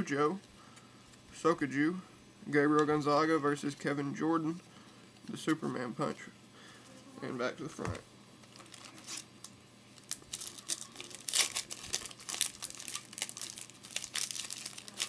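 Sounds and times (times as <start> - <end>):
foil wrapper crinkling and tearing: 8.4 - 15.0.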